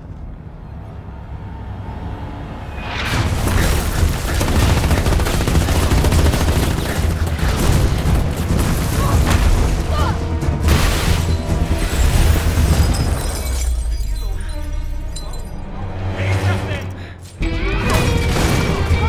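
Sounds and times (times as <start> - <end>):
film music score: 0.0 - 19.0
rapid gunfire: 3.4 - 9.8.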